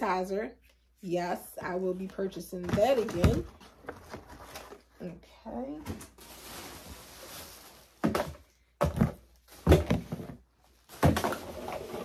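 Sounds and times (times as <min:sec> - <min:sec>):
plastic bottles rustling: 0:01.6 - 0:05.0, 0:05.8 - 0:12.0
plastic bottles set down thunks: 0:08.0 - 0:12.0.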